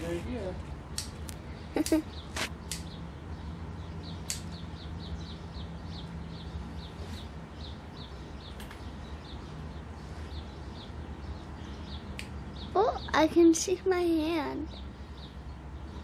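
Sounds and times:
sharp clicks: 0:00.9 - 0:03.0, 0:04.2 - 0:04.6
small bird chirping: 0:01.0 - 0:16.0.

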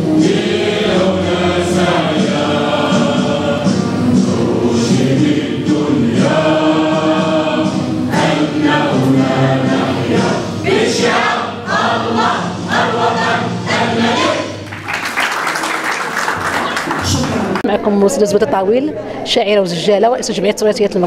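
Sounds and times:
crowd singing in unison: 0:00.0 - 0:14.8.

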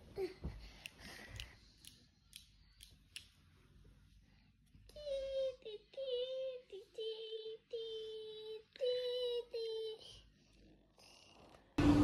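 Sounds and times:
child singing: 0:04.9 - 0:10.2.

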